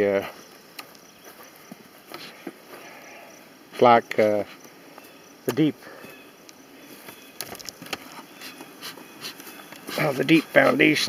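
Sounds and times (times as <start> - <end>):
faint insect buzzing: 0.0 - 11.0
person speaking: 9.8 - 11.0.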